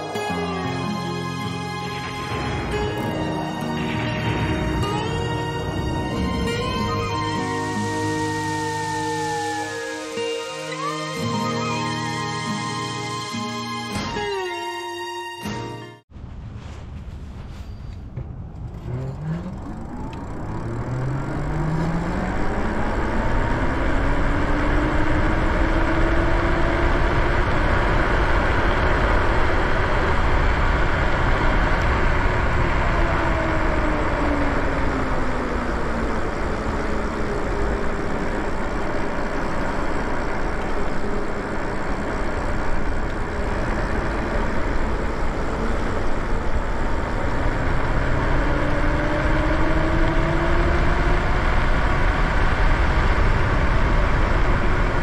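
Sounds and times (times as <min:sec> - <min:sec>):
wind and tyre noise: 0:00.0 - 0:10.4, 0:16.1 - 0:55.0
electric motor whining: 0:18.6 - 0:55.0.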